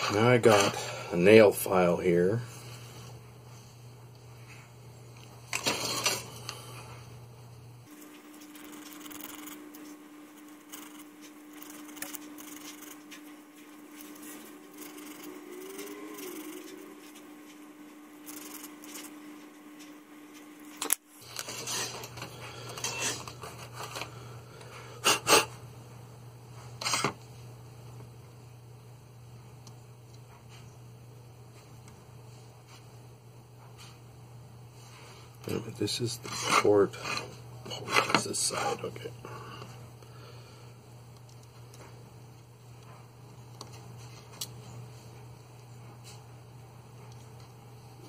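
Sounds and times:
faint steady hum: 0.0s - 48.0s
faint scrapes and ticks: 7.9s - 20.5s, 34.8s - 38.9s.

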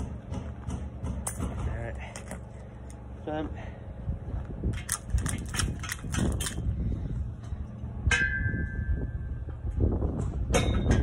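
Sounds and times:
ringing metal strike: 8.0s - 9.4s.

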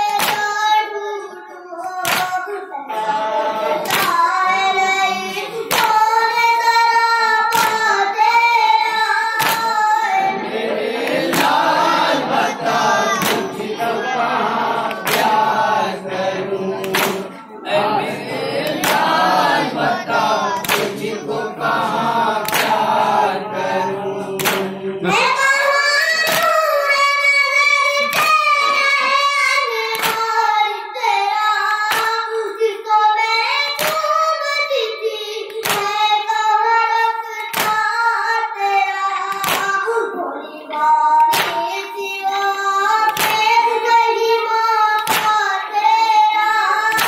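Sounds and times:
group singing refrain: 0.0s - 47.0s
hands striking chests: 13.2s - 13.6s, 16.8s - 17.4s, 24.4s - 24.7s.

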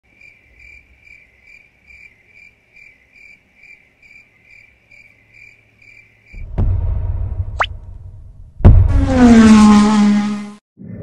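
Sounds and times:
cricket chirping: 0.1s - 6.4s.

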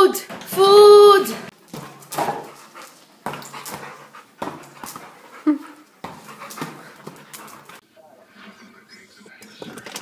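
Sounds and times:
dogs panting: 1.7s - 7.8s.

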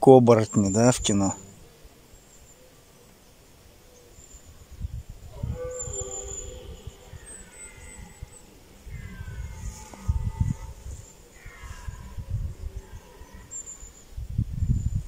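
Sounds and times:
deer stags roaring: 5.2s - 13.8s.

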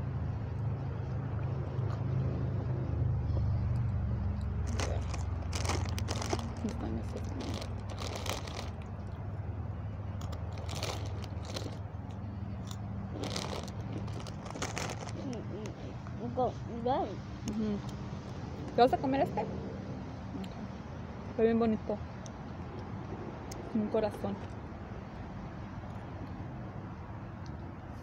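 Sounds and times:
low rumble: 0.0s - 9.5s
food crunching close up: 3.7s - 9.2s, 10.2s - 16.2s.

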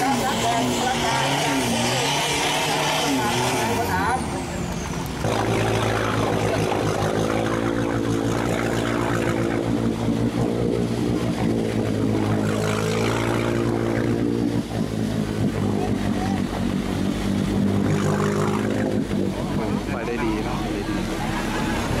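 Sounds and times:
truck engine droning: 0.0s - 22.0s.

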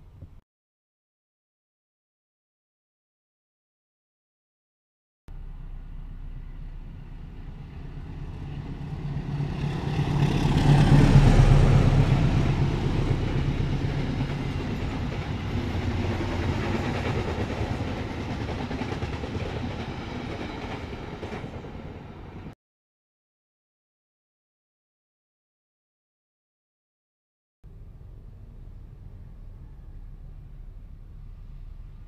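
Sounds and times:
carriages rumbling over rails: 5.3s - 22.5s, 27.7s - 32.0s
train passing at speed: 5.3s - 22.6s, 27.7s - 32.0s.

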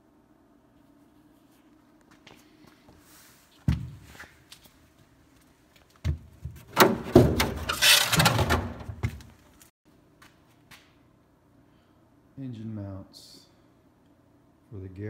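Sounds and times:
metal debris clattering and scraping: 6.8s - 8.9s.

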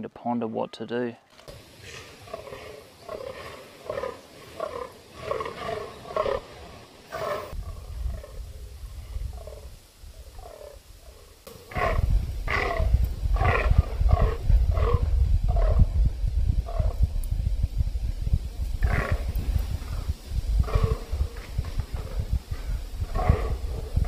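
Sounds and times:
deer croaking groans: 1.6s - 16.0s, 16.6s - 17.0s, 18.8s - 20.0s, 20.6s - 24.0s
low rumble: 7.5s - 24.0s.

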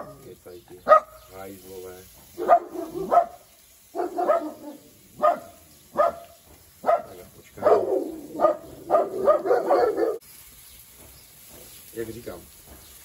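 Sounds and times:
dogs barking: 0.0s - 1.4s, 2.3s - 10.2s.

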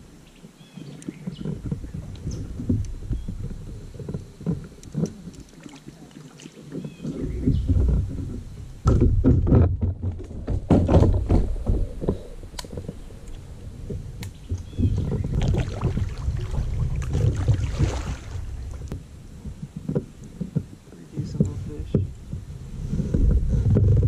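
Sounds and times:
water splashing: 1.0s - 8.8s, 11.1s - 22.3s
knocks against kayak hull: 6.8s - 13.0s
low rumble: 7.2s - 20.4s.

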